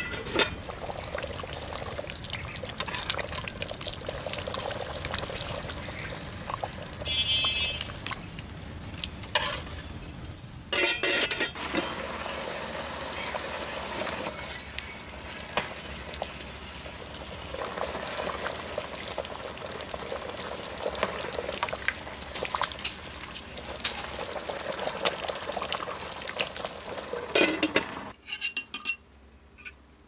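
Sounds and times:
ladle scraping metal pot: 0:00.0 - 0:00.7, 0:02.7 - 0:03.4, 0:09.3 - 0:09.9, 0:10.7 - 0:12.3, 0:27.3 - 0:28.6
curry bubbling in pot: 0:00.5 - 0:09.7, 0:11.6 - 0:28.1
ladle clinking on plate: 0:10.7 - 0:11.6.

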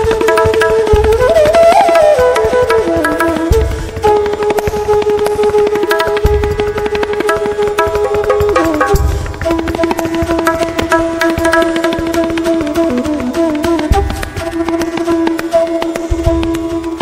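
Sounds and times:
tabla strokes: 0:00.0 - 0:17.0
deep low drum hits: 0:08.8 - 0:09.5.

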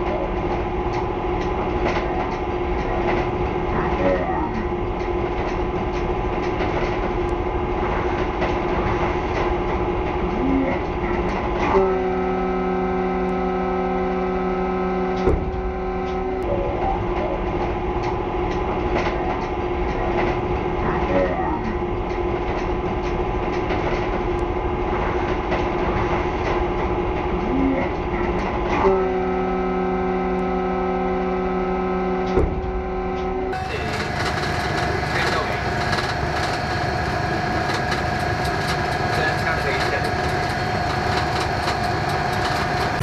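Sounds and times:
rail joint clicks: 0:00.0 - 0:12.2, 0:15.1 - 0:29.1, 0:32.3 - 0:43.0
locomotive running on rails: 0:00.0 - 0:43.0
locomotive horn blast: 0:11.6 - 0:16.6, 0:28.8 - 0:35.7.

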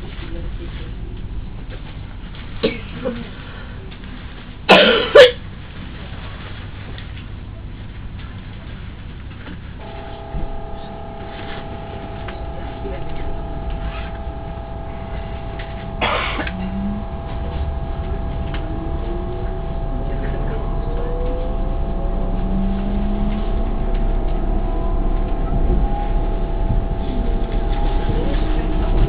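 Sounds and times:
electric train running: 0:09.8 - 0:29.0
traction drive whine rising: 0:09.8 - 0:29.0.

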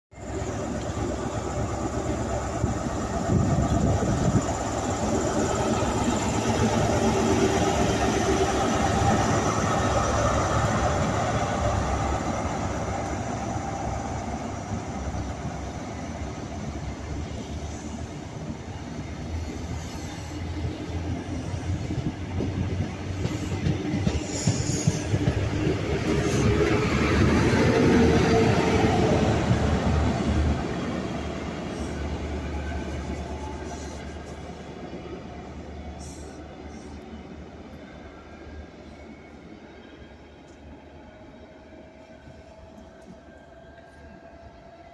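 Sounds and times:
diesel locomotive engine running: 0:00.2 - 0:39.4
train wheels clattering over rail joints: 0:22.0 - 0:26.8.

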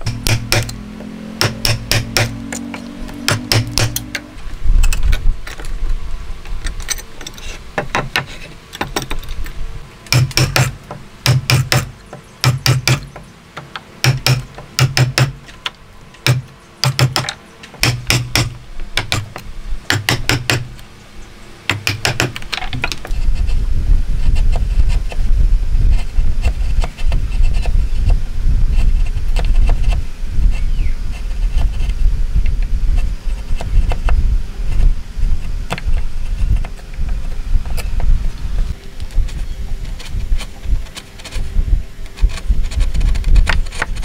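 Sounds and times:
low rumble: 0:00.0 - 0:06.6, 0:23.1 - 0:44.0
chisel knocking into wood: 0:01.4 - 0:02.3.

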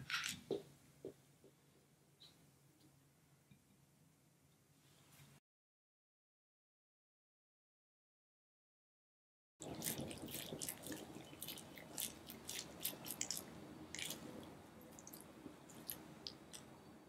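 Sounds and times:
squishy ball squelching and crackling: 0:09.6 - 0:16.6.

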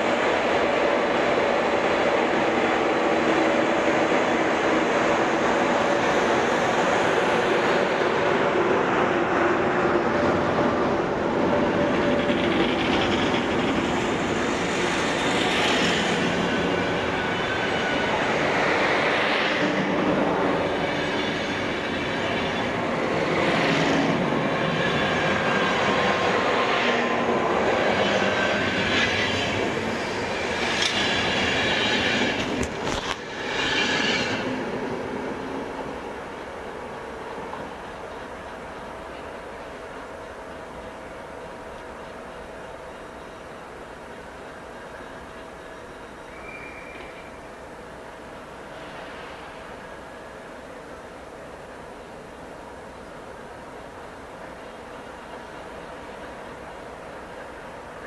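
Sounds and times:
train wheels clattering on rails: 0:09.7 - 0:39.5
faint thin wheel squeal: 0:46.2 - 0:47.4.

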